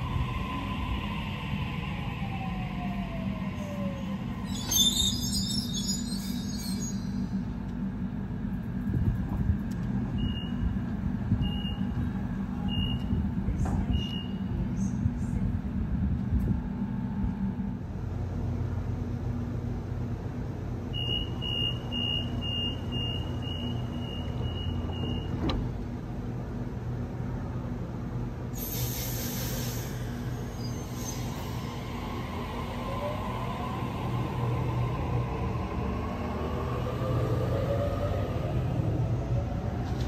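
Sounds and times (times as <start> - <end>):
electric train humming: 0.0 - 13.6, 14.4 - 40.0
door-closing warning beeps: 10.1 - 10.7, 11.4 - 12.0, 12.7 - 13.2, 21.0 - 25.6
door beeps: 21.0 - 25.5
train doors shutting thud: 24.2 - 25.9.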